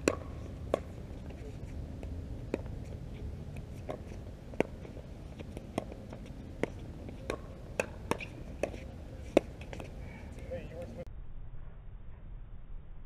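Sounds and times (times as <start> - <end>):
ball bouncing on hard court: 0.0 - 0.9, 5.6 - 9.9
low rumble: 10.8 - 13.0.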